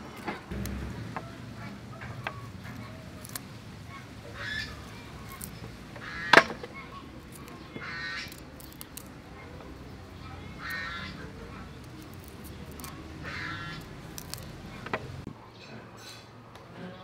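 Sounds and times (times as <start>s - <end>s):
goose-like bird calling: 1.2s - 9.0s, 10.2s - 14.9s.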